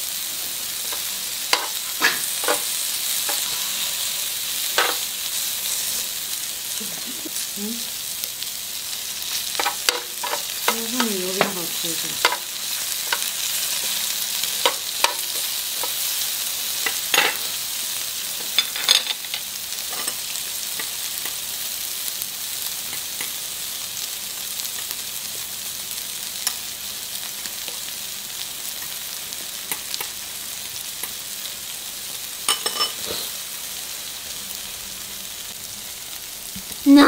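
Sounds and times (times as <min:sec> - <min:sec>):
food sizzling on a grill pan: 0:00.0 - 0:37.0
metal tongs clicking on pan: 0:00.9 - 0:02.7, 0:12.2 - 0:12.4, 0:14.6 - 0:16.0.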